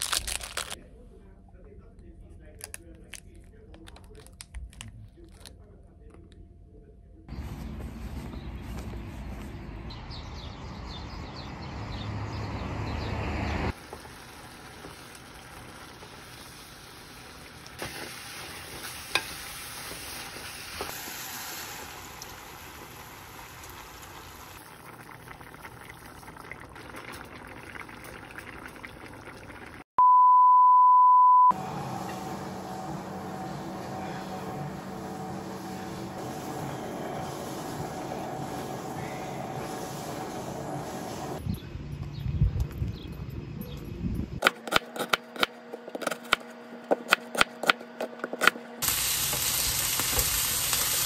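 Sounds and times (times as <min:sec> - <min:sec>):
food stir-frying in a pan: 0:13.7 - 0:29.7, 0:48.8 - 0:51.0
electronic beep: 0:30.0 - 0:31.6.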